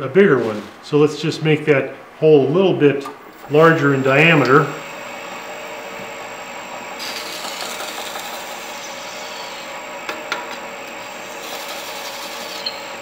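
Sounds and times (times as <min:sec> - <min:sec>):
wood lathe humming: 0:03.2 - 0:13.0
drill bit cutting hiss: 0:07.0 - 0:09.8, 0:11.0 - 0:13.0.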